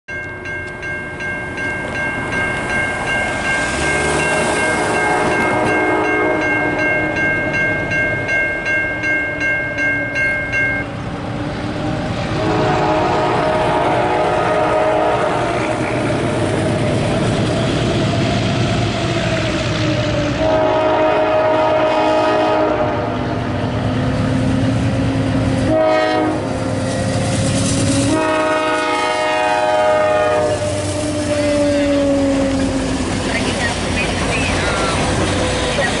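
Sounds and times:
railroad crossing bell ringing: 0.1 - 11.1
train rumble: 0.1 - 36.0
locomotive horn: 3.7 - 7.2, 12.2 - 16.9, 20.2 - 23.4, 25.6 - 26.8, 27.8 - 32.9.

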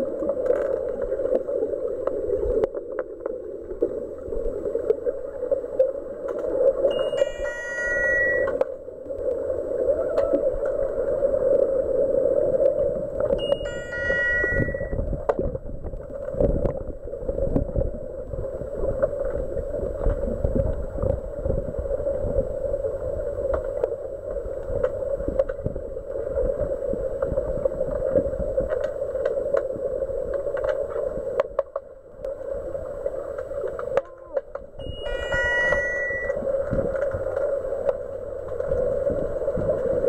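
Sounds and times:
underwater hum: 0.0 - 40.0
electronic stepped tone signal: 6.9 - 8.6, 13.4 - 15.0, 34.8 - 36.5.

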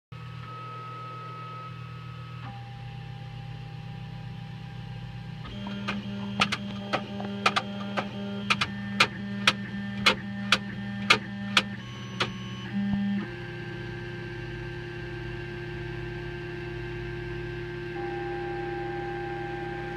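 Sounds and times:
stepper motors whining: 4.0 - 15.9
sharp clicks: 5.5 - 12.4.

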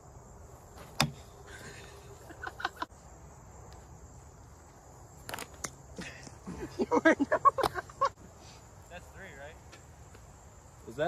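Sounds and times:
bat hitting plastic ball: 0.8 - 1.2.

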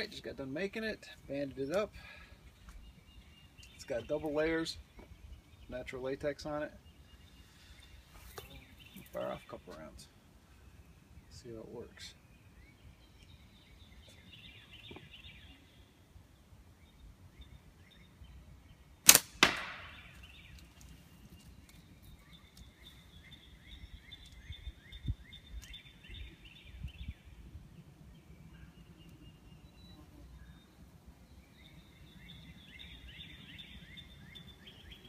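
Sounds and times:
sharp crack: 19.0 - 20.4.

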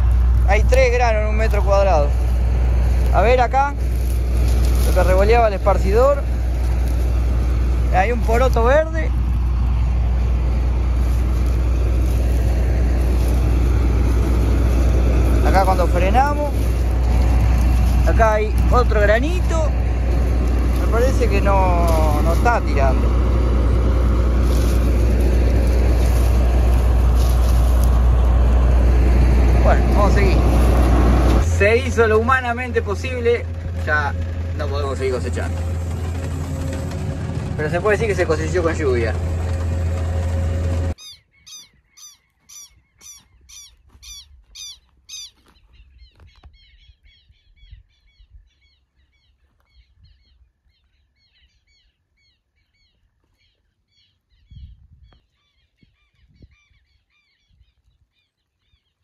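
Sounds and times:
harvester engine humming: 0.0 - 47.7
birds calling: 40.9 - 59.0.

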